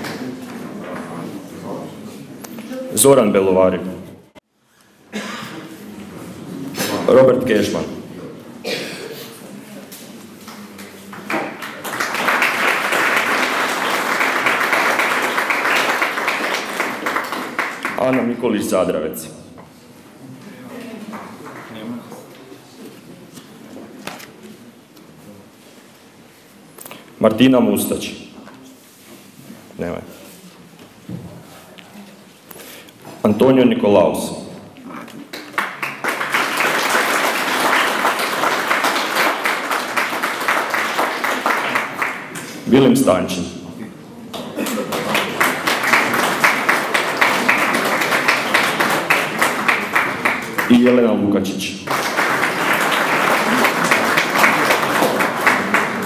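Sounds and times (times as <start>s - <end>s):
audience applauding: 10.5s - 18.4s, 35.2s - 42.6s, 44.4s - 51.0s, 51.9s - 56.0s.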